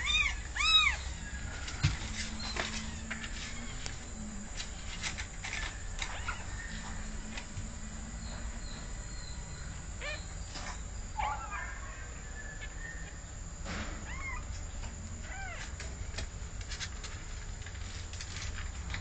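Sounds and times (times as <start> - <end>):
cat meowing: 0.0 - 1.2.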